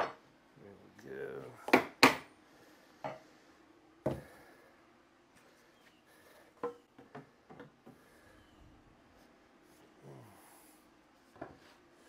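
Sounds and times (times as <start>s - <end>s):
tools and wood knocking on workbench: 0.0s - 0.2s, 4.0s - 4.3s, 6.6s - 8.0s.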